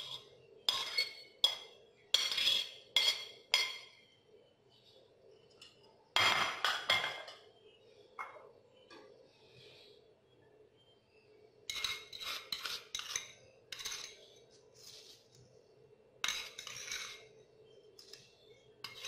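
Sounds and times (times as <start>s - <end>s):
spoon clinking against bowls: 0.0s - 4.0s, 11.7s - 14.3s.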